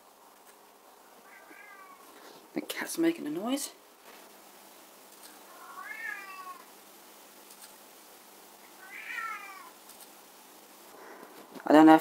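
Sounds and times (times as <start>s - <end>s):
cat meowing: 1.2s - 2.1s, 5.5s - 6.7s, 8.8s - 9.8s.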